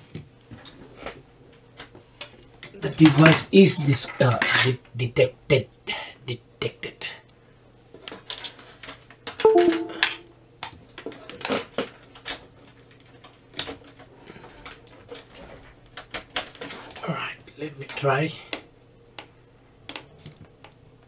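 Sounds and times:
brief pitched sound: 0:09.5 - 0:10.3.

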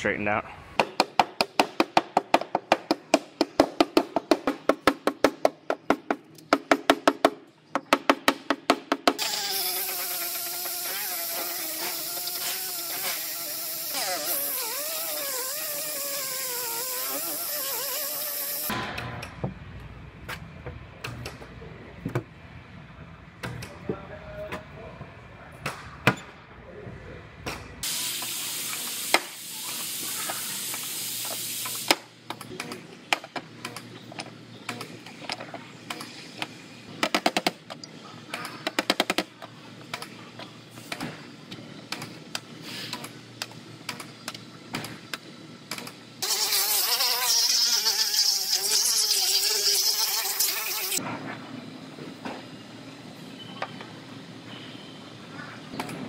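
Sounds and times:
air grinder on metal: 0:09.2 - 0:18.7, 0:46.2 - 0:51.0.

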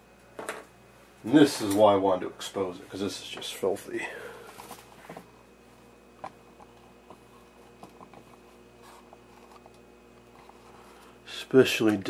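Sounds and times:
low electrical hum: 0:00.0 - 0:12.0
soft handling clicks and rustles: 0:04.5 - 0:05.3.

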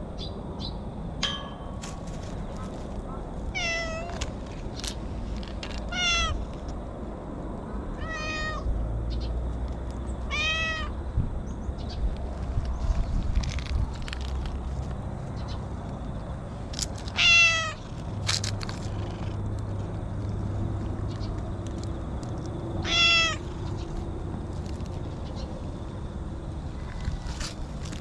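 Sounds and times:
cat meowing: 0:03.6 - 0:04.2, 0:05.9 - 0:06.4, 0:08.0 - 0:08.7, 0:10.3 - 0:10.9, 0:17.2 - 0:17.8, 0:22.8 - 0:23.4.

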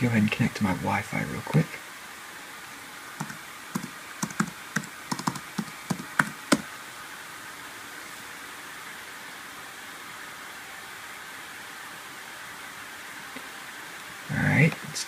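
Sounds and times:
laptop keyboard typing: 0:03.2 - 0:06.7.

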